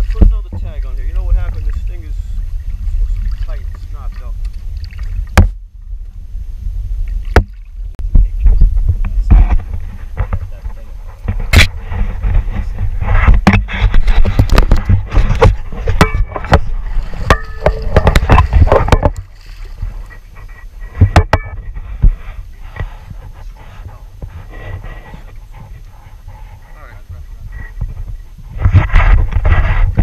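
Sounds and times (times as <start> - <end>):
lapping water: 0.0 - 5.5, 14.1 - 21.2, 22.0 - 28.6
wind buffeting on microphone: 0.0 - 30.0
sharp knocks: 13.2 - 19.2
shark thrashing and splashing water: 13.6 - 20.2.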